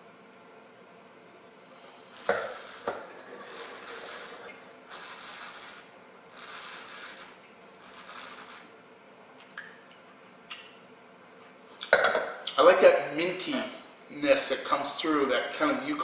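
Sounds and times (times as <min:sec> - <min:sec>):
person slurping wine: 0:02.0 - 0:04.6.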